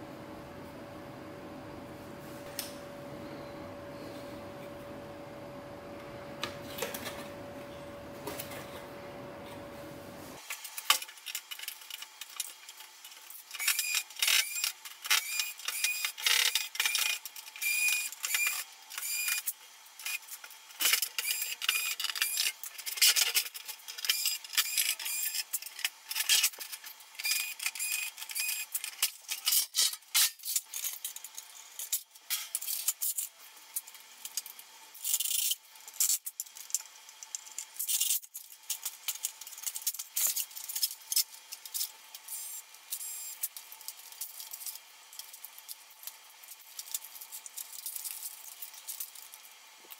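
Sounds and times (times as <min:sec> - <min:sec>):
stereo being dismantled clatter: 0:10.5 - 0:42.3.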